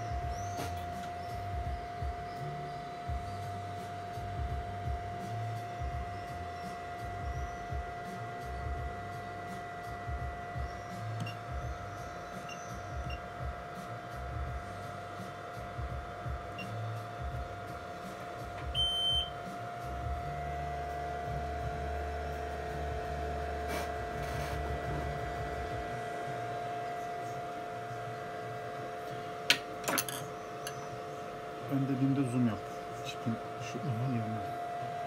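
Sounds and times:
electrical whine: 0.0 - 35.0
low machine hum: 0.0 - 35.0
clear beep: 18.8 - 19.3.

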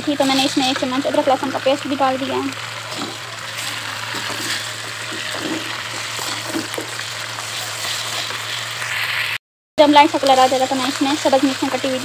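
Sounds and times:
onions sizzling in hot oil: 0.0 - 12.0
spatula stirring in wok: 2.6 - 9.0.

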